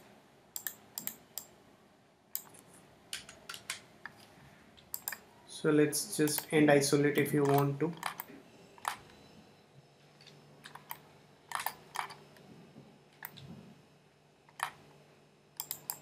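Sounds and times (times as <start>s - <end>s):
faint steady hum: 0.0s - 16.0s
mouse and keyboard clicks: 0.6s - 1.5s, 4.9s - 5.2s, 7.2s - 9.0s, 14.5s - 14.8s, 15.6s - 16.0s.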